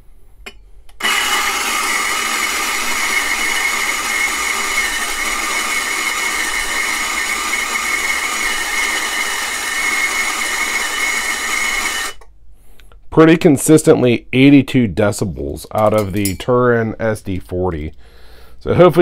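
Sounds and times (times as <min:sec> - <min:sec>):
coffee grinder whining: 0:01.0 - 0:12.2.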